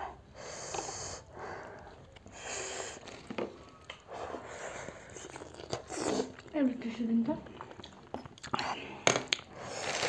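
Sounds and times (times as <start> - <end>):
sharp sniffing breaths: 0.0 - 3.2, 4.0 - 5.2
slurping noodles: 4.1 - 6.6, 7.7 - 10.0.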